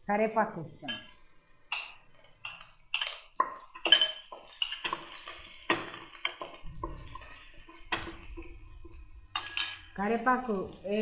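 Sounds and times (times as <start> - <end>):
spoon clinking on ceramic bowl: 0.8 - 10.0
wooden spoon knocking metal pot: 0.9 - 10.8.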